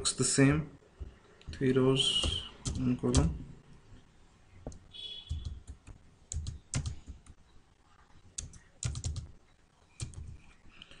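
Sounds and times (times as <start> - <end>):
computer keyboard typing: 1.4 - 3.4, 5.3 - 7.4, 8.3 - 9.4, 10.0 - 10.4.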